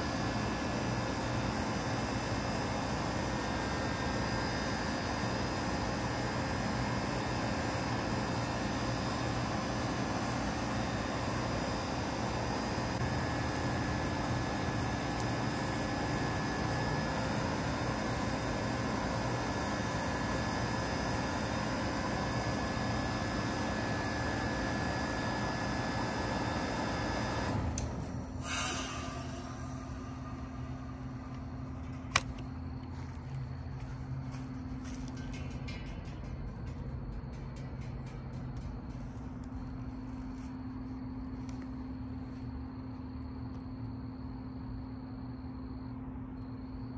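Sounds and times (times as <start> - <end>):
condenser fan rushing: 0.0 - 46.9
heat pump humming and hissing: 0.0 - 46.9
heat pump click: 13.0 - 21.4, 26.7 - 33.4.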